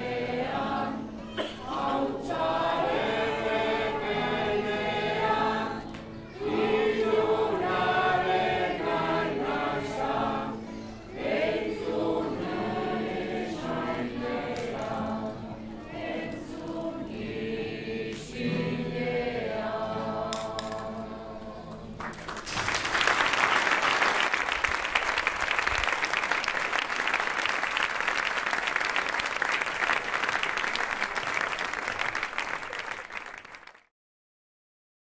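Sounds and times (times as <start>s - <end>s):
crowd singing: 0.0s - 22.0s
applause: 22.0s - 33.9s.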